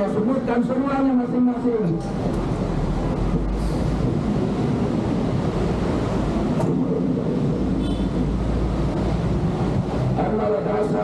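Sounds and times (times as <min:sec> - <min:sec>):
murmur of outdoor crowd: 0:00.0 - 0:05.0
wind rumbling on microphone: 0:02.2 - 0:10.2.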